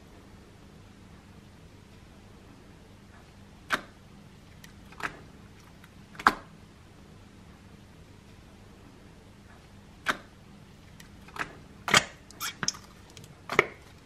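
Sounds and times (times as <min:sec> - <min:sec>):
wet slime squelches: 0:11.9 - 0:13.9.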